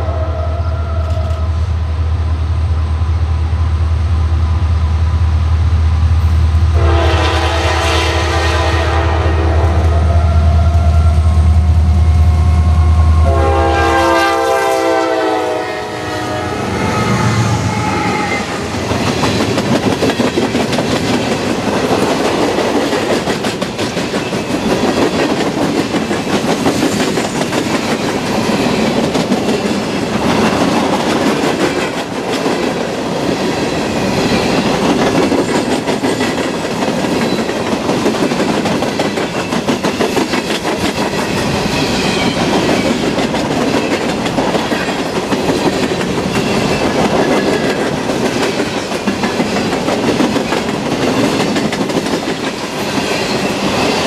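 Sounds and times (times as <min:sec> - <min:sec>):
train horn chord: 0:06.7 - 0:11.4, 0:12.1 - 0:18.7
train wheels clattering over rails: 0:18.6 - 0:54.0.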